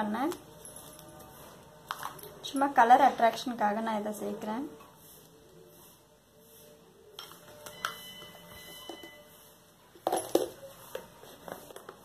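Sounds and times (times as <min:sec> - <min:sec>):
bowls clinking on glass: 0:07.2 - 0:09.3, 0:10.0 - 0:10.8.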